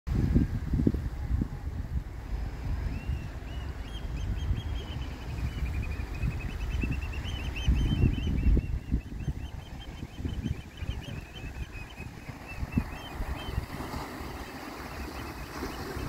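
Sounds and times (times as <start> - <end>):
low surf: 0.1 - 16.0
wind buffeting microphone: 0.1 - 16.0
bird calling in wavering notes: 3.4 - 16.0.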